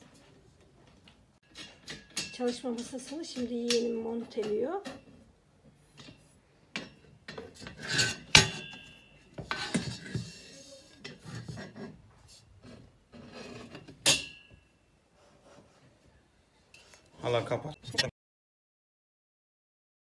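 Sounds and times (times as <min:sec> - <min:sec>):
metal scraping and rubbing: 0:05.9 - 0:14.4.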